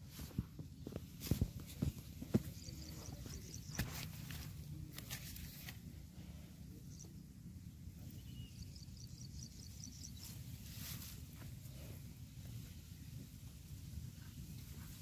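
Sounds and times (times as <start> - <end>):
low steady rumble: 0.0 - 15.0
faint high chirps: 6.7 - 10.6.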